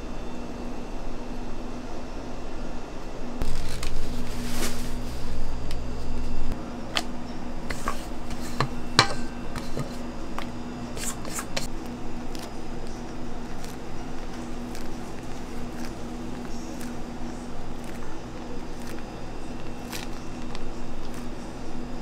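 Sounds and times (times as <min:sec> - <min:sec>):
steady low hum: 0:00.0 - 0:22.0
trays and utensils clicking: 0:07.0 - 0:11.7.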